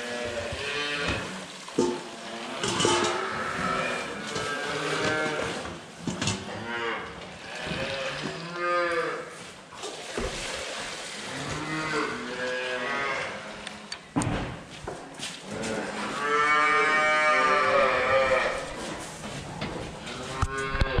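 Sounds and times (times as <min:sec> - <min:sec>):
calves mooing: 0:00.0 - 0:05.7, 0:06.3 - 0:09.4, 0:11.3 - 0:13.9, 0:15.4 - 0:18.9, 0:20.0 - 0:21.0.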